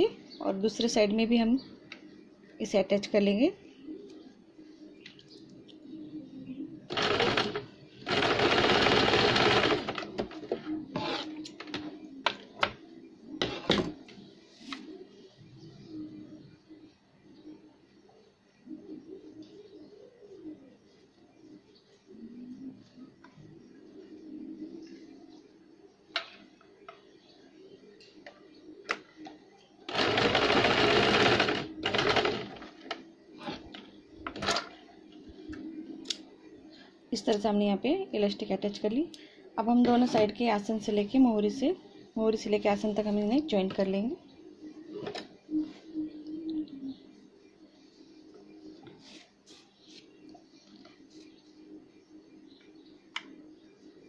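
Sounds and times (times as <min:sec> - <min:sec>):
sewing machine stitching: 0:06.9 - 0:10.3, 0:29.9 - 0:32.8.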